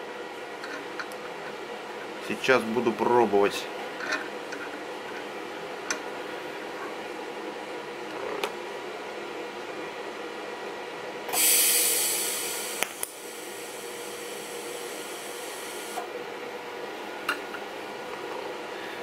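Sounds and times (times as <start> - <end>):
steady machine hum: 0.0 - 19.0
welding arc hissing: 11.3 - 16.0.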